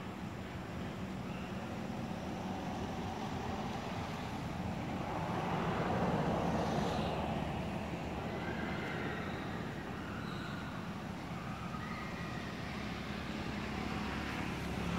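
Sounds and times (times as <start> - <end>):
motor vehicle passing: 2.4 - 9.9.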